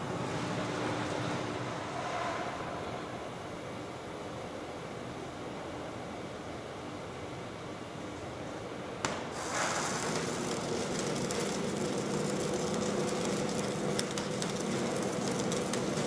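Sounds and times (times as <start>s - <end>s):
steady machine hum: 0.0s - 16.0s
crackling of sparks: 9.0s - 16.0s.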